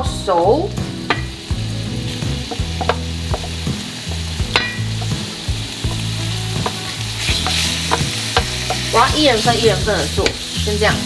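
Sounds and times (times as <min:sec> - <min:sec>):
chicken sizzling in frying pan: 0:00.0 - 0:11.0
wooden spatula scraping and knocking: 0:05.9 - 0:09.2.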